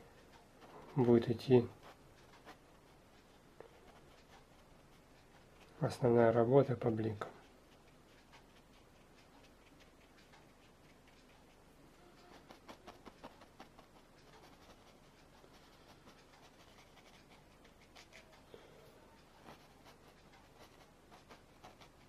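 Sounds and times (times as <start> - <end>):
paintbrush taps and scratches: 12.2 - 18.4, 19.2 - 22.0.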